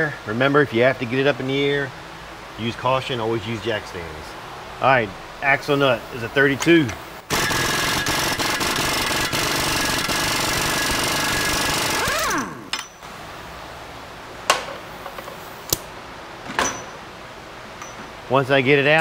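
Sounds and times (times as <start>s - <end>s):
impact wrench rattling: 7.3s - 13.0s.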